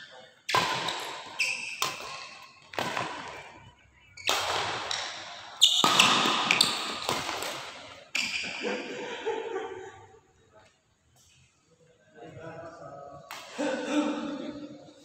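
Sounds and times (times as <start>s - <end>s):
rackets hitting shuttlecock: 0.5s - 8.6s, 13.3s - 13.6s.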